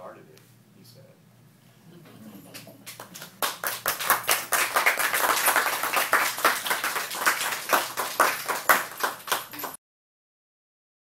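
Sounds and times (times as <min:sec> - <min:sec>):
small audience applauding: 0:02.5 - 0:09.8.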